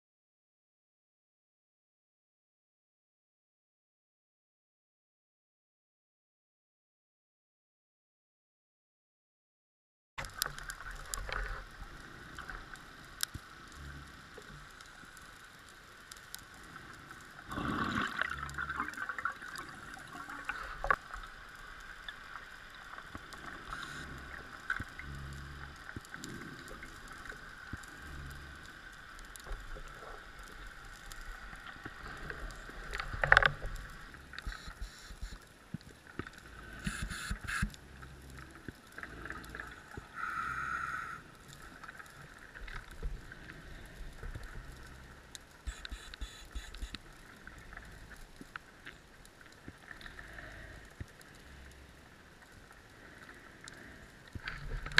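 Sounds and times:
underwater clicks: 10.2s - 11.7s, 23.0s - 40.7s, 42.6s - 51.2s
muffled underwater water noise: 10.2s - 54.9s.

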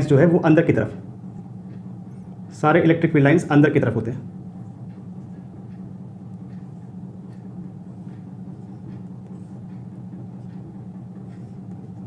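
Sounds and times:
steady low hum: 0.0s - 12.0s
marker scratching on whiteboard: 6.4s - 12.0s.

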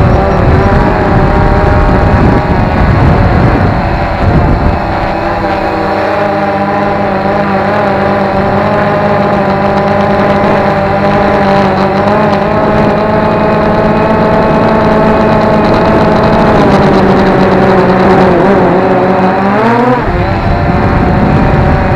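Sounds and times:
drone motors whining: 0.0s - 21.9s.

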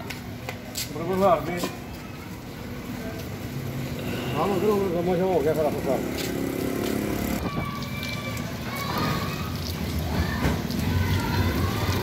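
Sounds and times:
water splashing: 5.4s - 12.0s.

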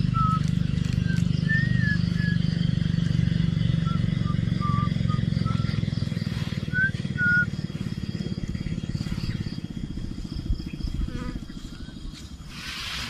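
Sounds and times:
small engine running: 0.0s - 13.0s.

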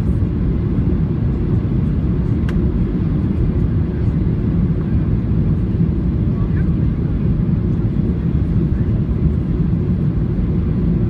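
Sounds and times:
jet engine rumble inside cabin: 0.0s - 11.0s
faint click: 2.4s - 2.6s.

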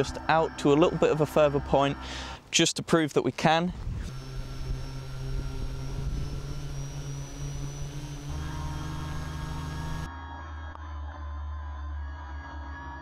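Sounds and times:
propeller motor hum and whine: 0.0s - 2.3s, 4.0s - 10.1s.

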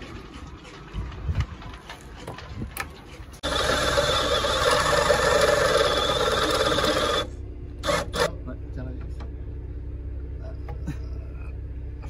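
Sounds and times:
cordless drill running: 3.4s - 8.3s.

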